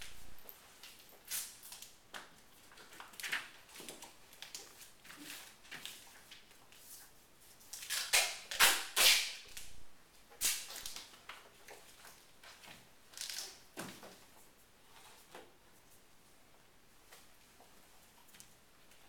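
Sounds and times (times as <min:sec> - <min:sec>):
tape ripping off roll: 0:07.8 - 0:09.7.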